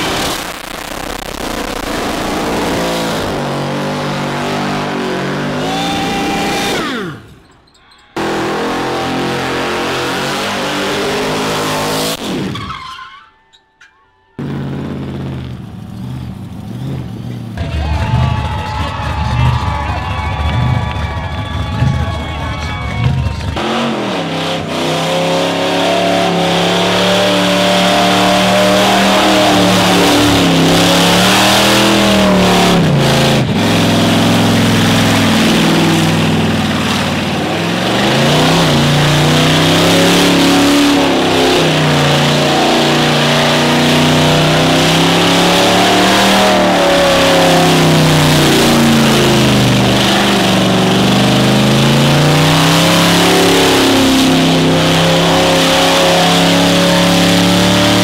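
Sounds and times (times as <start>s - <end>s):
sharp cracks: 0.0s - 3.1s
car engine revving: 0.0s - 13.0s, 14.4s - 58.0s.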